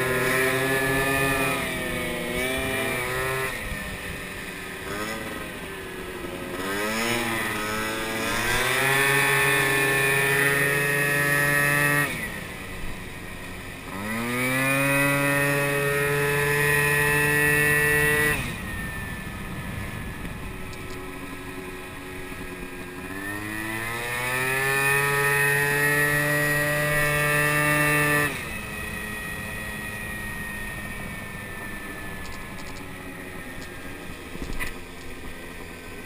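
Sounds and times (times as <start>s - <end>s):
moped engine revving: 0.0s - 36.0s
wind noise: 16.2s - 21.5s.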